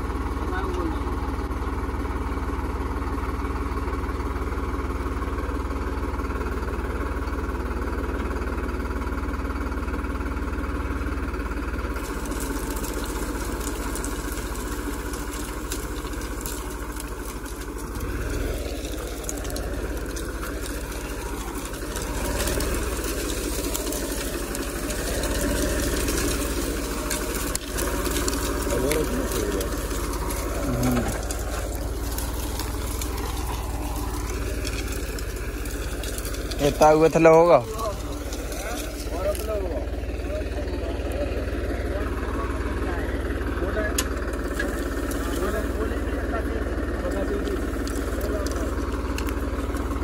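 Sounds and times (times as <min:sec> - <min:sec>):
tractor diesel engine running: 0:00.0 - 0:50.0
plough hissing through soil: 0:12.0 - 0:39.7.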